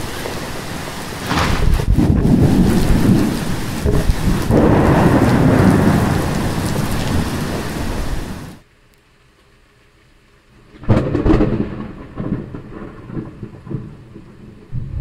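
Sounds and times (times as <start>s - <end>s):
thunder crack and rumble: 0.0s - 8.6s, 10.6s - 15.0s
heavy rain: 0.0s - 15.0s.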